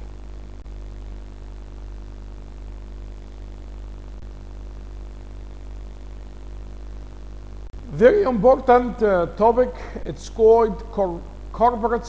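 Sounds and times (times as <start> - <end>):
low electrical hum: 0.0 - 12.0
faint background hiss: 4.0 - 12.0.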